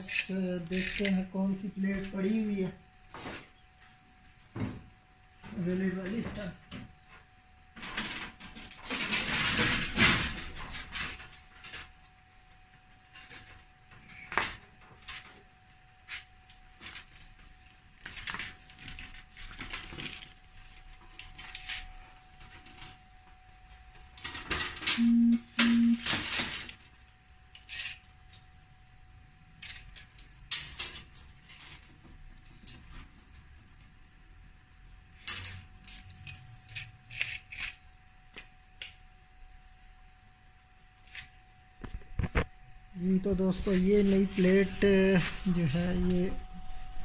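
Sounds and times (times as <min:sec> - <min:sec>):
short low beeps: 0:25.0 - 0:26.1.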